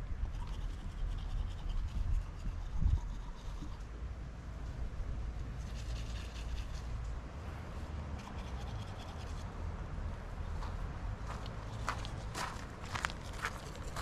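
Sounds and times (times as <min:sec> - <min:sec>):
steady low rumble: 0:00.0 - 0:14.0
footsteps on gravel: 0:10.6 - 0:14.0.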